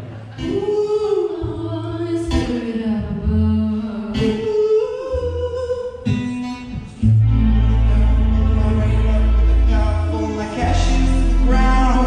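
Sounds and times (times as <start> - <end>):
acoustic guitar chords: 0.0 - 12.0
low bass notes: 0.0 - 12.0
keyboard chords: 6.6 - 12.0.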